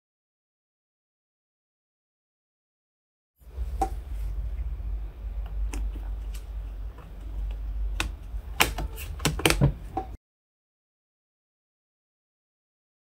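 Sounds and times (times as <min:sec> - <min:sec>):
steady low hum: 0:03.4 - 0:10.2.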